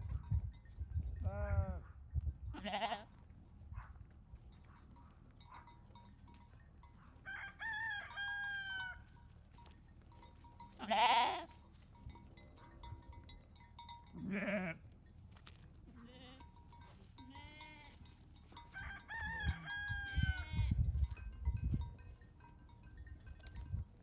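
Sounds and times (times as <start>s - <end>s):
sheep bleating: 2.6s - 3.1s, 10.8s - 11.6s, 14.2s - 14.8s, 16.0s - 16.4s, 17.2s - 18.0s.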